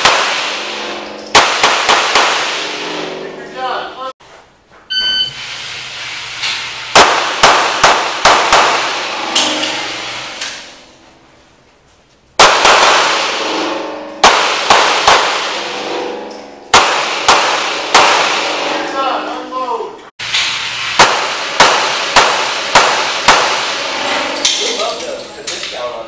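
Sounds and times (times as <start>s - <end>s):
handgun shots echoing indoors: 0.0s - 3.0s, 6.9s - 10.7s, 12.4s - 13.6s, 14.2s - 15.8s, 16.7s - 18.6s, 20.9s - 24.6s.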